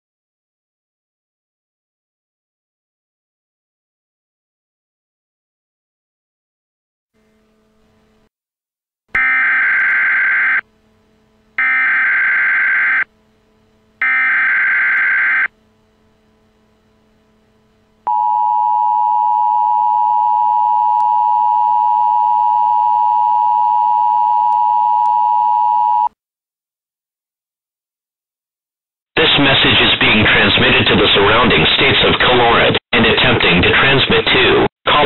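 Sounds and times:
two-tone attention signal: 0:18.1 - 0:26.1.

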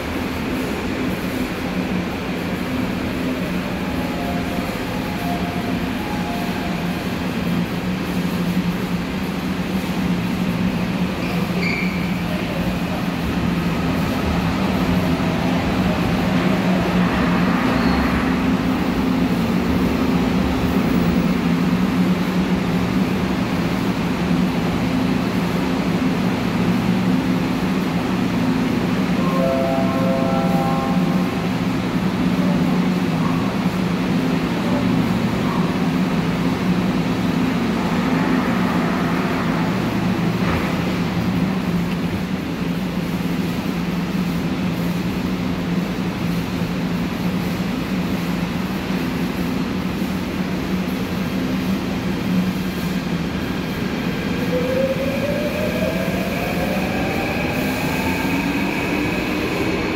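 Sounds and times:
train electrical hum: 0:00.0 - 0:59.9
short high squeal: 0:11.2 - 0:12.1.

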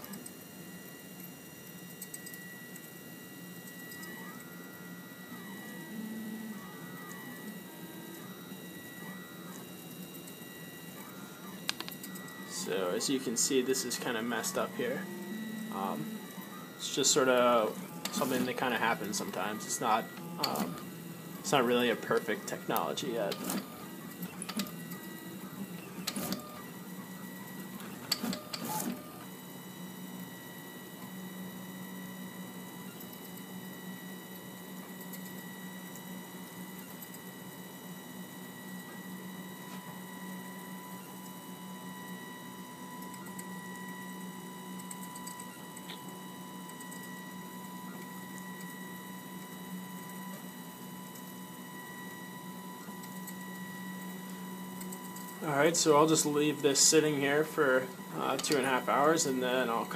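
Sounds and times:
three-d printer humming and whining: 0:00.0 - 0:59.9
faint printer ticks: 0:01.2 - 0:31.2, 0:31.8 - 0:59.9
stepper motors whining: 0:03.8 - 0:28.4.

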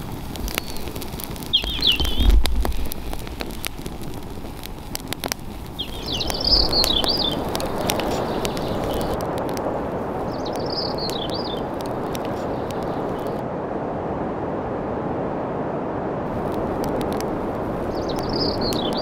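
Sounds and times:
fire pops and snaps: 0:00.0 - 0:13.4, 0:16.3 - 0:19.0
wood fire crackling: 0:00.0 - 0:13.8, 0:16.2 - 0:19.0
steady rushing noise: 0:00.0 - 0:19.0
songbird warbling: 0:00.5 - 0:03.2, 0:05.7 - 0:09.2, 0:10.2 - 0:13.4, 0:17.8 - 0:19.0.

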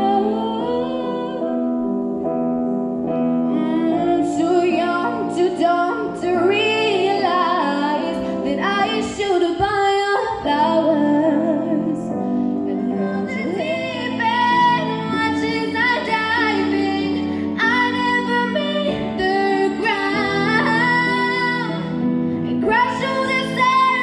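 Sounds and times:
instrumental backing: 0:00.0 - 0:24.0
woman singing long notes: 0:09.7 - 0:21.9.

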